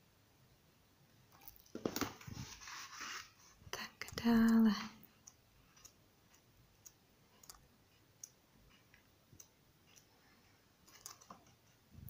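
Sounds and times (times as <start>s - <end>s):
paper pages turning: 1.8s - 3.6s.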